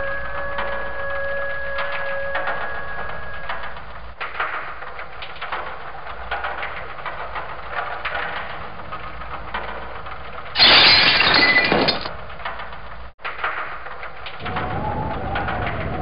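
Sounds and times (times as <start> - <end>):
small crackles and clicks: 0.2 - 10.6
glass crashing clatter: 10.6 - 12.1.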